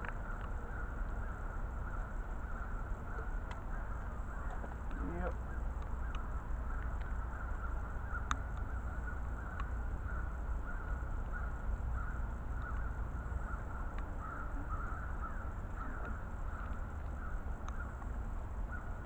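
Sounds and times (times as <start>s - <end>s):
faint clicks: 0.0s - 1.3s, 3.1s - 7.2s, 8.2s - 8.8s, 9.4s - 9.8s, 12.5s - 13.0s, 13.7s - 15.0s, 15.7s - 18.2s
distant birds calling: 0.0s - 19.0s
low steady rumble: 0.0s - 19.0s.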